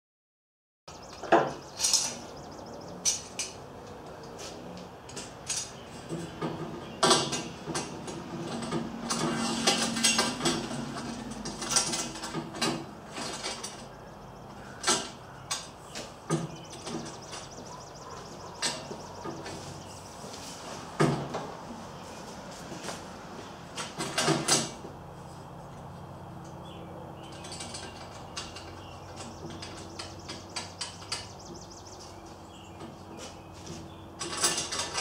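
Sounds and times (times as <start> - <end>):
metal parts and tools clinking: 1.5 - 2.2, 3.0 - 3.6, 5.1 - 5.8, 7.0 - 14.0, 27.2 - 31.3, 34.2 - 35.0.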